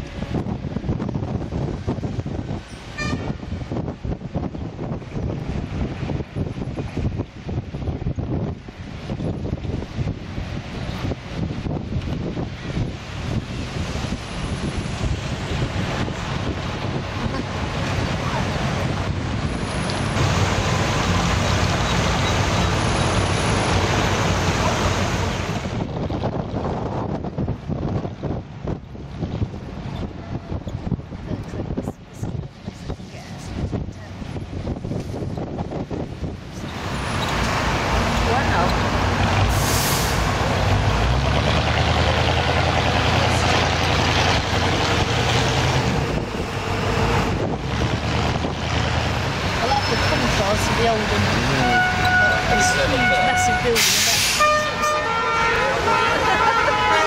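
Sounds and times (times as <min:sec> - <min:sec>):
road and traffic noise: 0:00.0 - 0:57.0
vehicle engine rumble: 0:00.0 - 0:57.0
car engine drone: 0:33.7 - 0:57.0.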